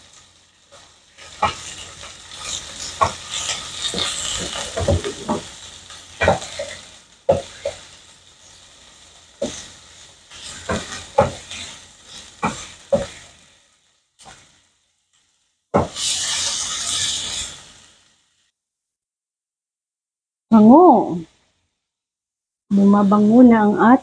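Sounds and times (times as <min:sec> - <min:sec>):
ham and garlic sizzling in pan: 0:00.0 - 0:18.6
wooden spatula scraping pan: 0:00.7 - 0:07.8, 0:10.3 - 0:13.3, 0:15.8 - 0:17.7.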